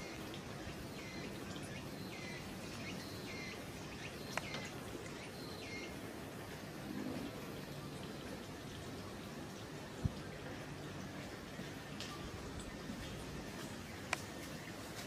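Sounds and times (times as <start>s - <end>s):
bird chirping: 0.0s - 6.0s
outdoor background hiss: 0.0s - 15.0s.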